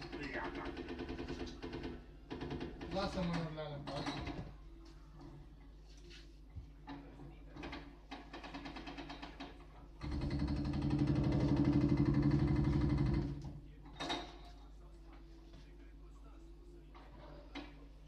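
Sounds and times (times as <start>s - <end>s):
hydraulic breaker pounding brick: 10.0s - 13.4s.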